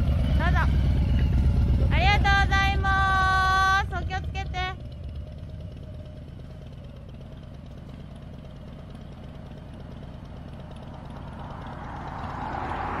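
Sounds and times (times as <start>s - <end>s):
passing traffic rush: 0.0s - 3.4s, 9.8s - 13.0s
motorcycle idling: 0.0s - 13.0s.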